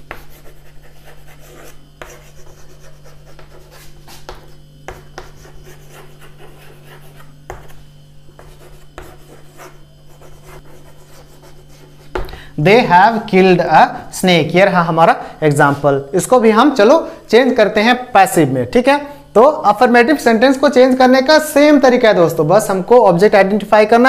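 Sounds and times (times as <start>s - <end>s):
chalk scratching on chalkboard: 0.0s - 12.2s
steady low hum: 0.0s - 24.0s.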